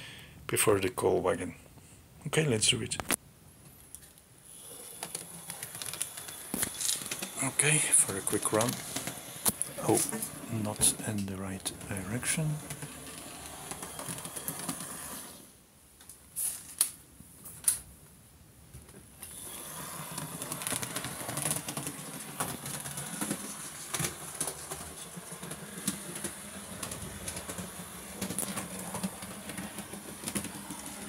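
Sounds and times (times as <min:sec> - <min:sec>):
wheels clicking over rail joints: 0:20.1 - 0:31.0.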